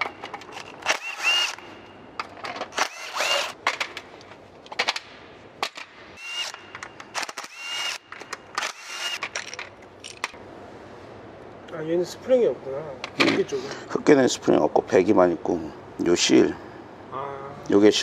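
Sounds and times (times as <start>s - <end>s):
power driver whining: 6.2s - 9.4s
metal parts clinking in tray: 9.2s - 10.4s.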